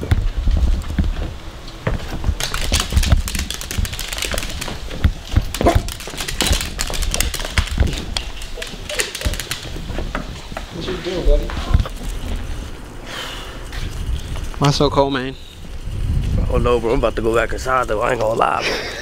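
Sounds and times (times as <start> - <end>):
dog claws tapping on wooden floor: 0.9 - 10.7.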